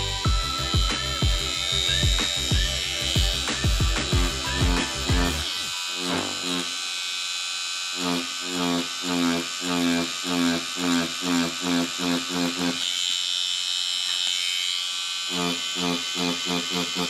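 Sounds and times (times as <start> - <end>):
low pulsing buzz: 0.0 - 7.1
tattoo machine buzzing: 0.0 - 17.0.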